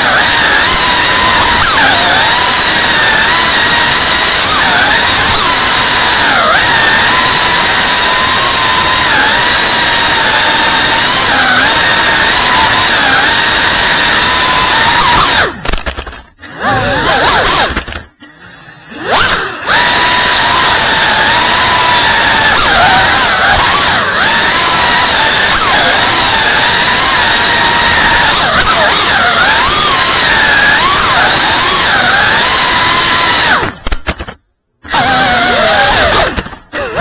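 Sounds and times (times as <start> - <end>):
drone motors whining: 0.0 - 37.0.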